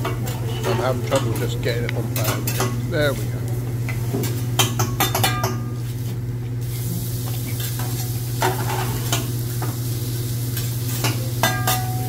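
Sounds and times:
constant low hum: 0:00.0 - 0:12.0
food sizzling on a griddle: 0:05.8 - 0:12.0.

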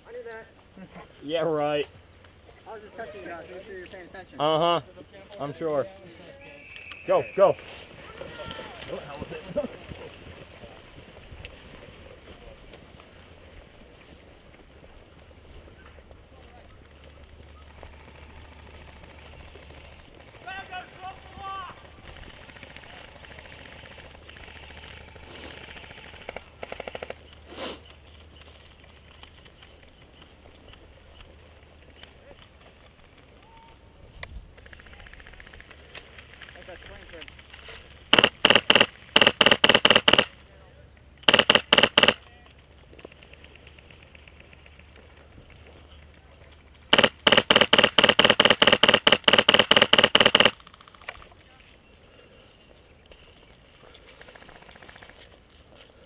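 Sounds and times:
airsoft gun firing: 0:38.1 - 0:40.3, 0:41.3 - 0:42.2, 0:46.9 - 0:50.7.

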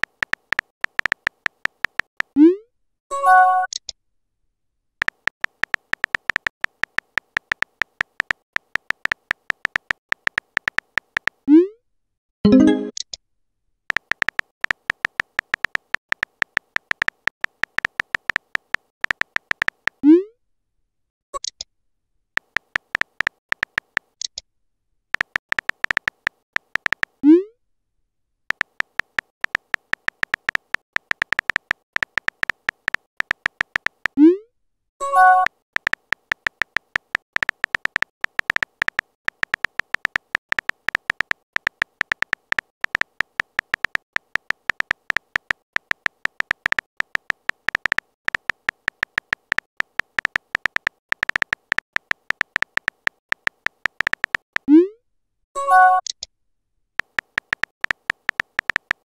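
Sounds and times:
phone keyboard typing clicks: 0:00.0 - 0:02.4, 0:05.0 - 0:11.4, 0:13.9 - 0:20.0, 0:22.4 - 0:24.4, 0:25.2 - 0:27.2, 0:28.5 - 0:34.2, 0:35.0 - 0:54.7, 0:57.0 - 0:59.0.

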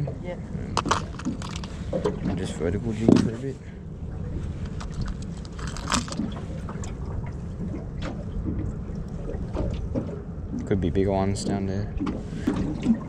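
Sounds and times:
boat motor rumble: 0:00.0 - 0:13.0.

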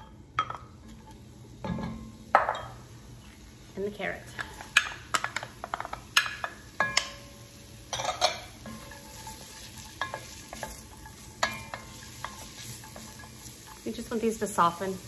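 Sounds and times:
vegetables sizzling in oil: 0:00.0 - 0:15.0
spoon scraping and knocking pot: 0:07.9 - 0:14.1.

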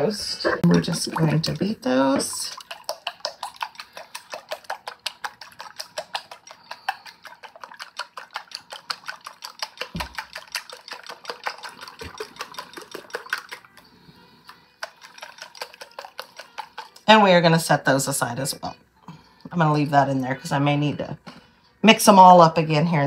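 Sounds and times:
whisk clicking against glass bowl: 0:00.7 - 0:13.8, 0:14.7 - 0:17.6.

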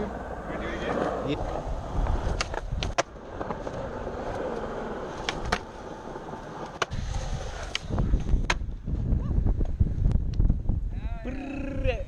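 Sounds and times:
skateboard wheels rolling on concrete: 0:00.0 - 0:11.8
skateboard clacks: 0:00.6 - 0:07.0.

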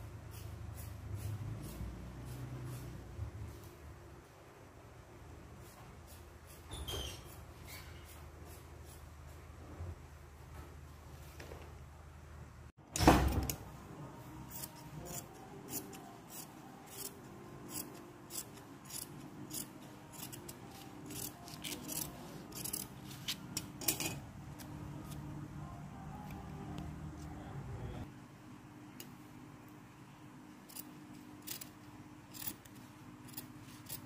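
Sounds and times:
scissors snipping fabric: 0:14.5 - 0:23.4.

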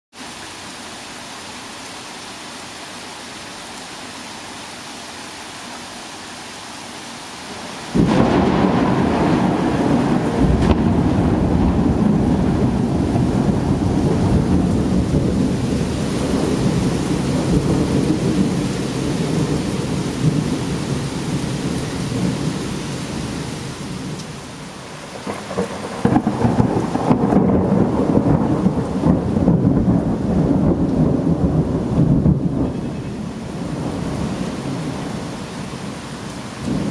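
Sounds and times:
rain hiss: 0:00.1 - 0:36.9
thunder rumbling: 0:07.5 - 0:36.9.

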